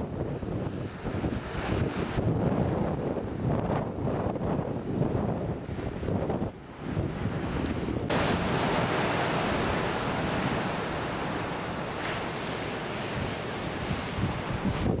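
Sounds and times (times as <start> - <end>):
wind rumbling on microphone: 0.0 - 15.0
surf breaking on rocky shore: 3.4 - 15.0.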